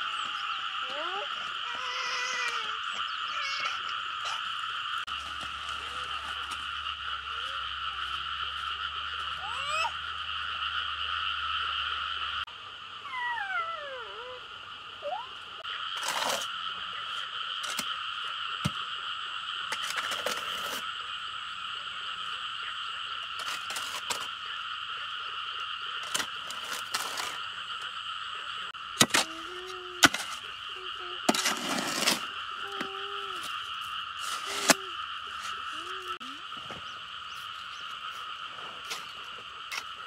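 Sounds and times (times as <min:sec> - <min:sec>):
chorus of calling animals: 0:00.0 - 0:12.0, 0:13.0 - 0:16.0.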